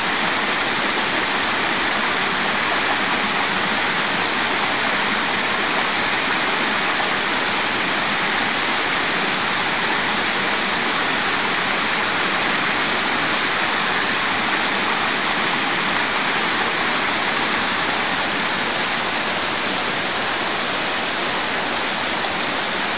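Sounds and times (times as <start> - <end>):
waterfall rushing over boulders: 0.0 - 22.9.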